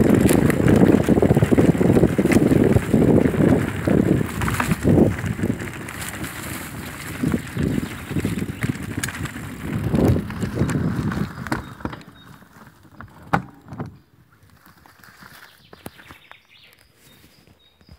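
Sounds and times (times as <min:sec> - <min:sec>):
wind on microphone: 0:00.0 - 0:12.4
bike tyre rumble: 0:00.0 - 0:17.6.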